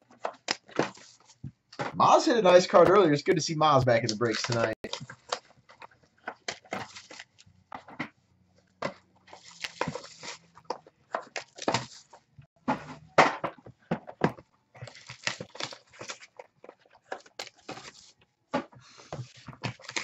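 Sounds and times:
cardboard boxes rustling and scraping: 8.8 - 20.0.

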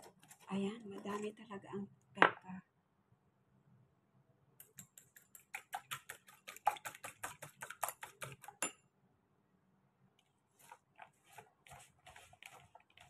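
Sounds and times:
whisk clicking against bowl: 4.6 - 8.8.

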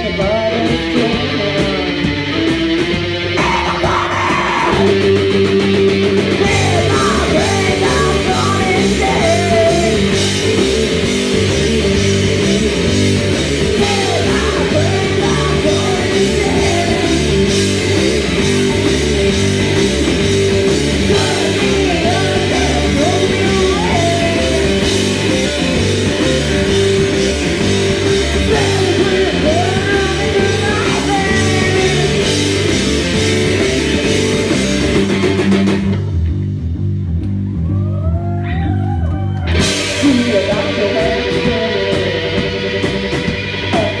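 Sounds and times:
rock band playing loud: 0.0 - 44.0
woman singing: 6.4 - 12.2, 13.8 - 17.6, 21.1 - 24.8, 28.5 - 32.3, 40.0 - 42.5.

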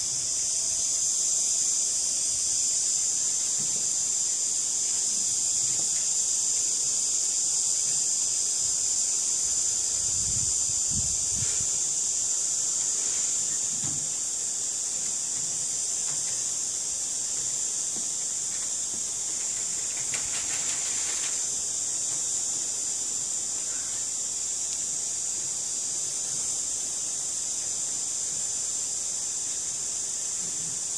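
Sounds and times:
high-pitched hiss: 0.0 - 30.9
scratchy rustle: 19.3 - 21.6.

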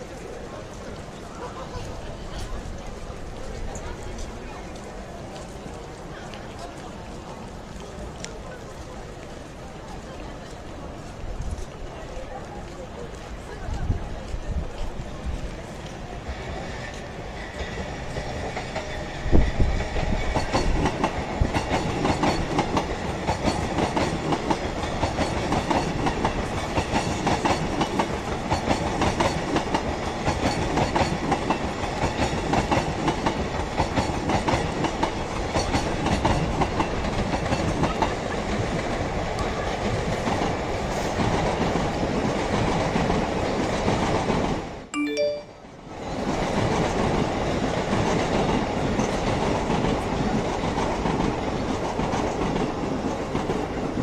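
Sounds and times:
train wheels clattering on rails: 12.6 - 44.8, 46.2 - 54.0.

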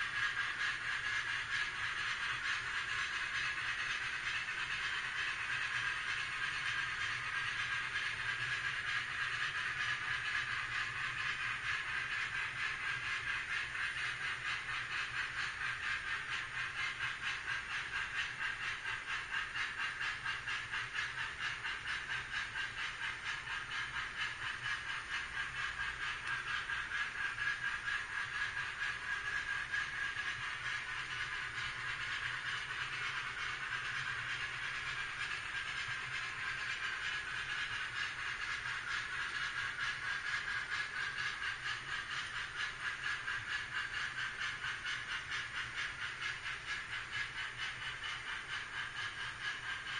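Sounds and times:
model train cars rolling rattle: 0.0 - 49.9
wheels clicking over rails: 0.0 - 49.9.

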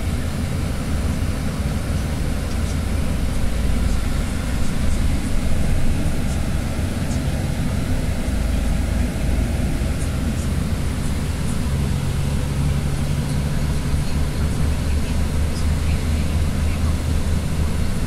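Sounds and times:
bus engine and road noise: 0.0 - 18.0.

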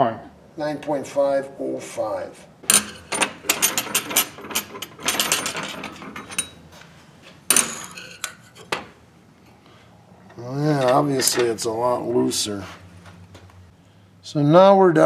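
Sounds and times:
metal clatter: 2.6 - 6.6, 7.5 - 9.0, 10.3 - 11.8.

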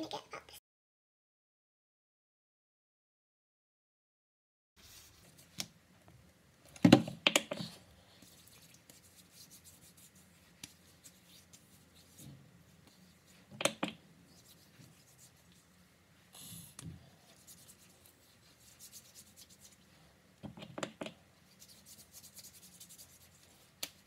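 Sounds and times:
hands rubbing lotion into skin: 20.8 - 24.0.

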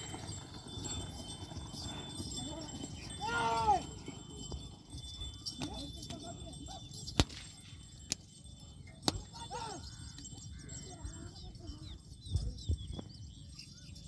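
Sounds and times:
distant shouting voices: 0.0 - 7.1, 8.9 - 11.4
wind rumble on microphone: 0.0 - 14.0.

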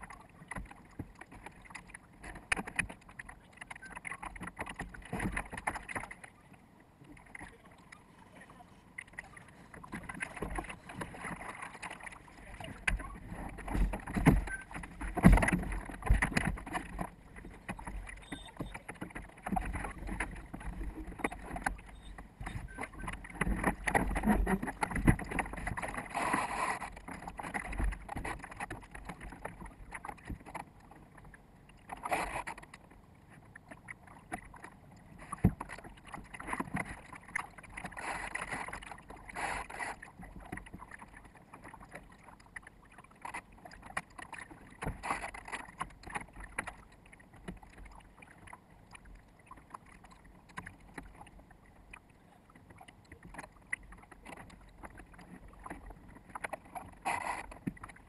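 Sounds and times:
water slapping against boat hull: 0.0 - 6.4, 8.9 - 58.0.

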